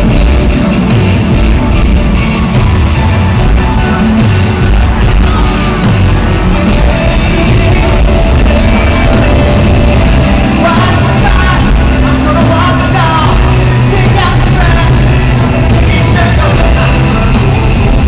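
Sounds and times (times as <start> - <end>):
live concert music over pa: 0.0 - 18.0
man singing into microphone: 6.4 - 18.0.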